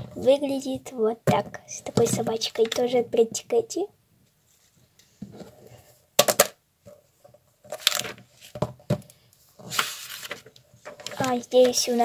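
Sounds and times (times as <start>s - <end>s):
notebook pages rustling: 9.6s - 12.0s.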